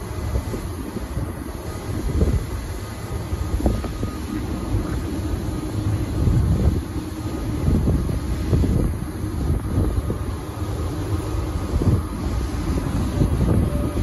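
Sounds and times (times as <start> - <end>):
low buffeting: 0.0 - 14.0.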